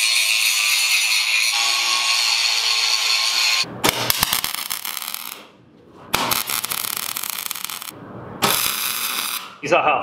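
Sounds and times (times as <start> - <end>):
angle grinder grinding steel: 0.0 - 3.6
welding arc crackle: 3.9 - 5.5, 6.1 - 9.6.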